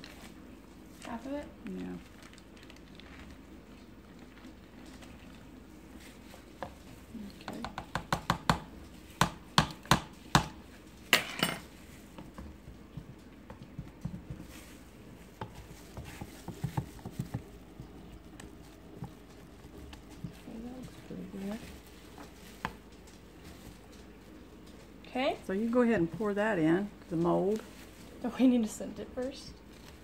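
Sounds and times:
stir stick knocking on plastic tub: 6.0 - 10.6, 12.1 - 22.9.

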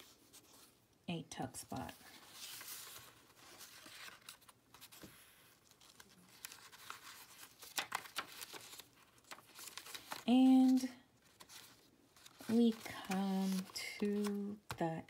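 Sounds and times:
paper pages rustling: 1.7 - 14.8
paper edges ticking: 5.8 - 14.8.

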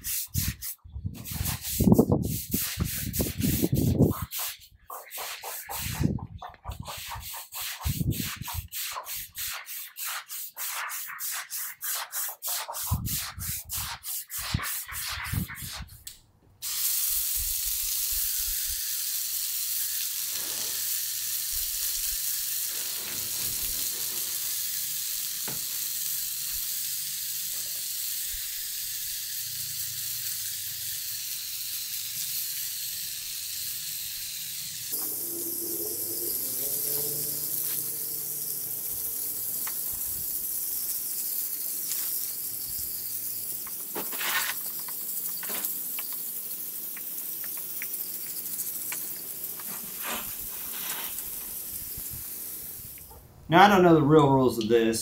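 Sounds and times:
stiff brush scrubbing concrete: 0.0 - 15.9, 20.2 - 21.0, 43.7 - 45.4, 49.4 - 51.6
hose spray nozzle hissing: 0.0 - 53.2.

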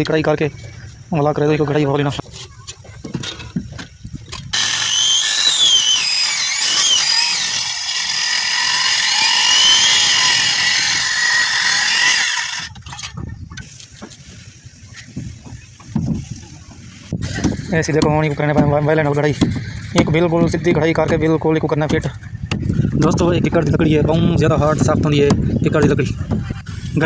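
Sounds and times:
circular saw cutting wood: 4.5 - 12.7.

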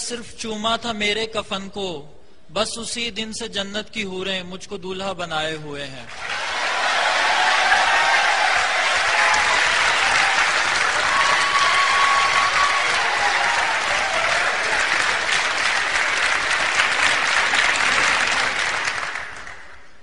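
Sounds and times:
audience applauding: 6.1 - 20.0.

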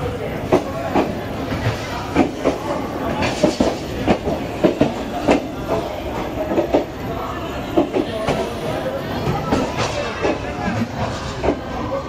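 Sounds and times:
train rumble: 0.0 - 12.0
train wheels clattering over rail joints: 3.2 - 5.9.

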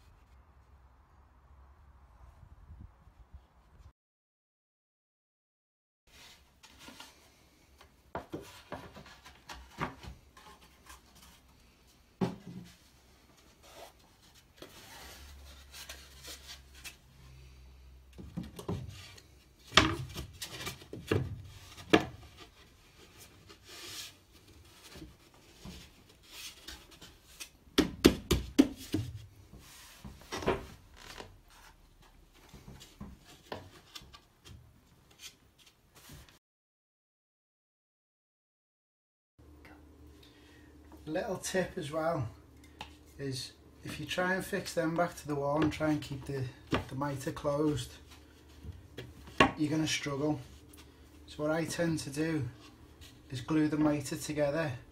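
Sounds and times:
wood rubbing and scraping: 18.1 - 27.6
sharp knocks of wood: 27.8 - 29.1.

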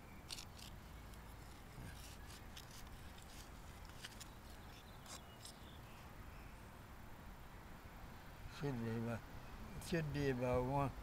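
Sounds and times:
trowel scraping soil: 0.3 - 5.7.

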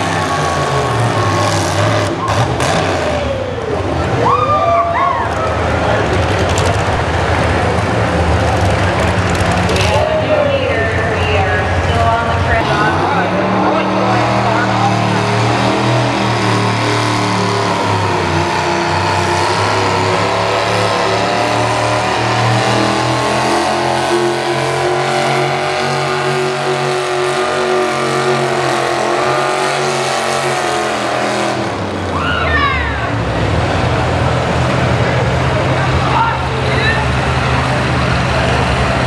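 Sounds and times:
tractor engine running under load: 5.6 - 10.0.

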